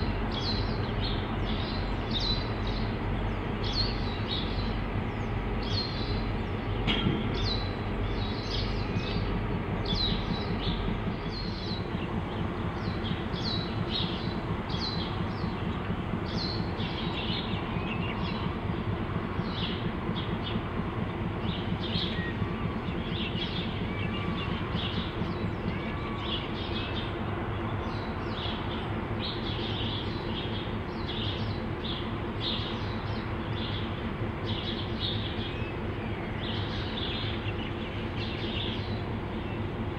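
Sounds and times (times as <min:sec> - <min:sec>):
locomotives idling: 0:00.0 - 0:39.9
wagon coupling clunk: 0:06.8 - 0:07.5.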